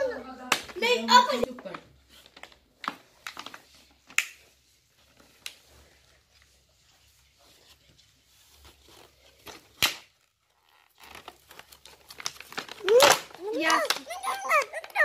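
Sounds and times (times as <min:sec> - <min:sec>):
paper wrapping tearing: 0:08.6 - 0:15.0.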